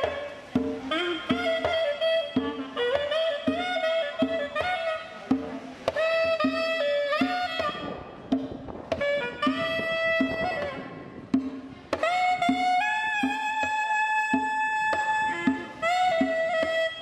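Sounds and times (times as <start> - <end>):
percussion strokes: 0.0 - 17.0
reedy wind instrument melody: 0.0 - 17.0.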